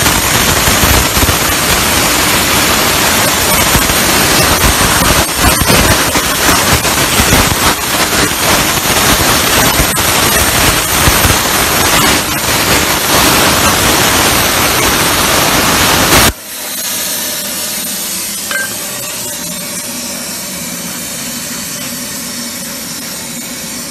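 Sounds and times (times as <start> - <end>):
plasma torch cutting hiss: 0.0 - 23.9.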